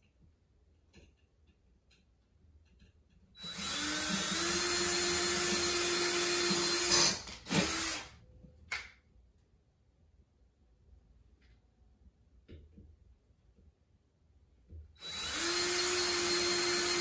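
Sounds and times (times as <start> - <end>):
cordless drill boring: 3.4 - 8.1, 15.0 - 17.0.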